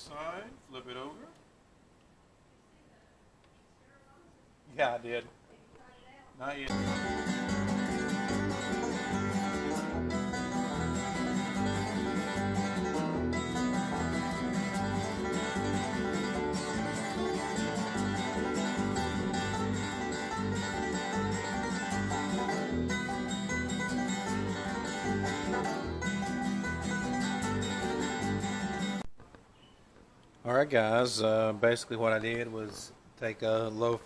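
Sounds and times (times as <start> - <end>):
country music with guitar and banjo: 6.7 - 29.0.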